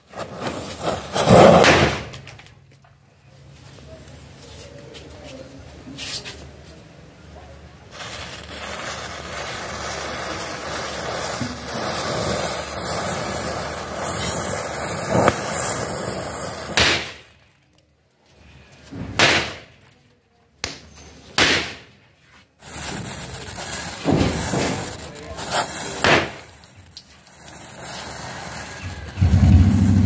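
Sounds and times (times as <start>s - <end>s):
sharp bangs: 1.2s - 2.3s, 28.8s - 30.0s
matchsticks fizzing and crackling: 7.9s - 17.2s, 22.6s - 29.3s.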